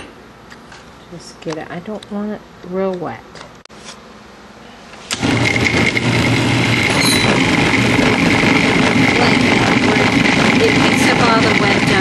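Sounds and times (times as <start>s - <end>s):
food processor running: 5.1s - 12.0s.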